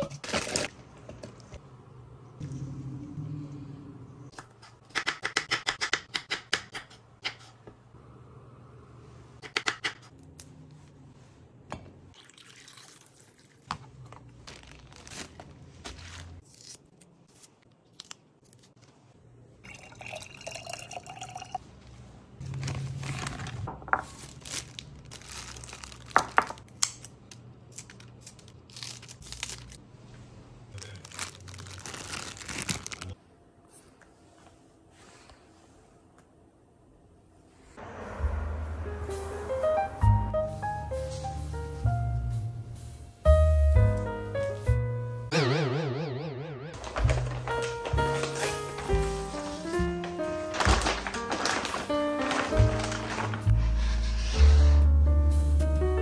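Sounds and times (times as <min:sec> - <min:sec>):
liquid pouring into glass jar: 0:12.2 - 0:13.6, 0:19.6 - 0:21.6
plastic bag crinkling: 0:14.4 - 0:16.4, 0:22.5 - 0:26.7, 0:30.8 - 0:33.2, 0:46.8 - 0:53.7.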